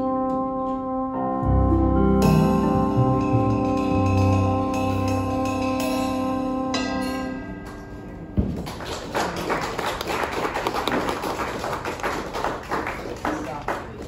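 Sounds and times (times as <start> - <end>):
jazz band final chord: 0.0 - 7.4
audience clapping: 8.5 - 14.0.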